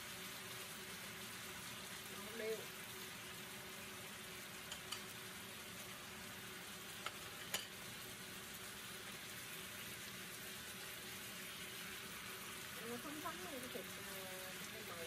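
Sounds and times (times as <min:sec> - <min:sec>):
food sizzling in a pan: 0:00.0 - 0:15.0
utensils clicking against pan: 0:04.7 - 0:05.1, 0:07.0 - 0:07.8.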